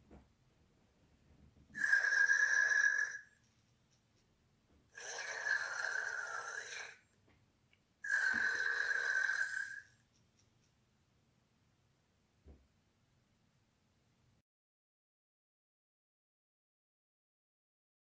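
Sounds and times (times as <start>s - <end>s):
toy robot electronic snoring: 1.8s - 3.3s, 4.9s - 7.0s, 8.0s - 10.0s.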